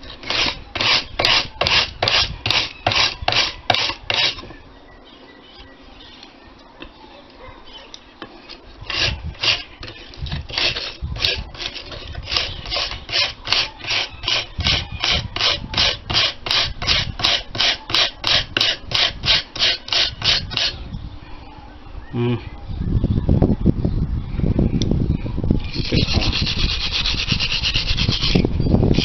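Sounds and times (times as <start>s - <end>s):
hand brush scrubbing rusty iron: 0.0s - 4.5s, 8.8s - 20.8s.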